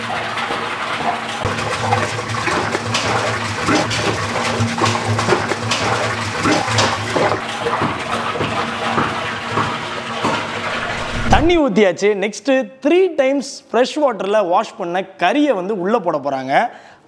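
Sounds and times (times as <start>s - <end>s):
water pouring into a metal pot: 0.0s - 11.5s.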